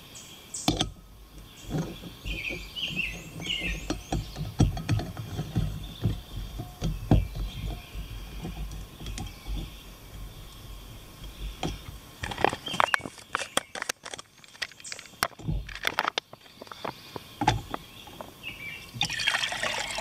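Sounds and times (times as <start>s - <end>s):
stove screwing onto gas canister: 0.6s - 10.6s, 11.2s - 18.3s
plastic pouch crinkling: 12.2s - 16.9s.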